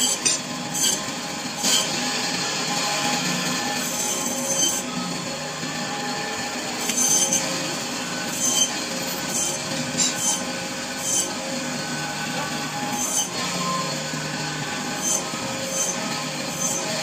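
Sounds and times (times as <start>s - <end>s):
saw blade biting through bone: 0.0s - 1.0s
band saw whining: 0.0s - 17.0s.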